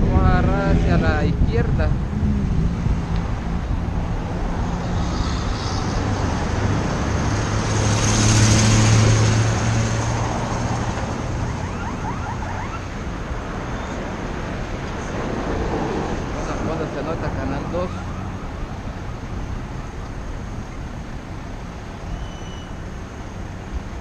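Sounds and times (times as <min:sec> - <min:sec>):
vehicle passing close: 0:00.0 - 0:12.8
street traffic: 0:00.0 - 0:24.0.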